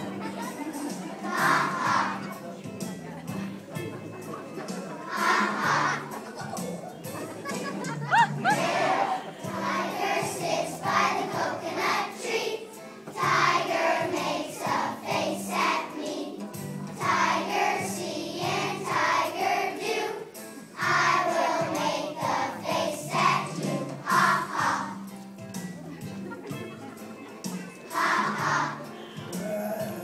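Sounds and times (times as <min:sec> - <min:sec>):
children's choir singing: 0:00.0 - 0:02.6, 0:04.6 - 0:06.4, 0:08.4 - 0:25.1, 0:27.8 - 0:30.0
instrumental accompaniment: 0:00.0 - 0:30.0.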